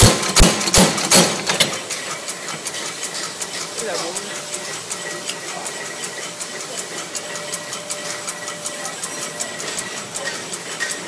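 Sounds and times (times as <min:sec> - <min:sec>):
power hammer striking: 0:00.0 - 0:01.8
steady machine hum: 0:00.0 - 0:11.0.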